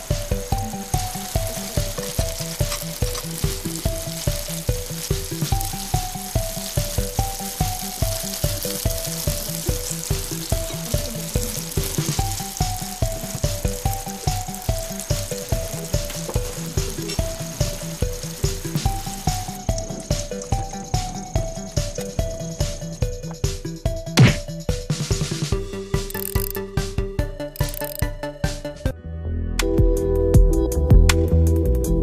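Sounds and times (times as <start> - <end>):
food deep-frying in oil: 0.0 - 23.7, 25.9 - 26.7, 27.6 - 28.1
background music with steady beat: 0.0 - 32.0.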